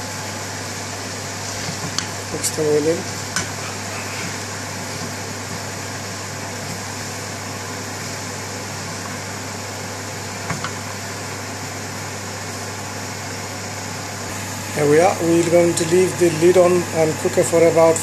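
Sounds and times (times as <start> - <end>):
steady hum and hiss: 0.0 - 18.0
spatula stirring food in pan: 1.3 - 9.3.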